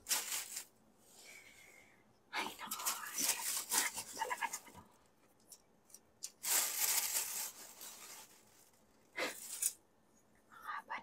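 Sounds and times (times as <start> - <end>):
packaging rustling: 0.0 - 0.7, 2.6 - 4.6, 6.2 - 9.8.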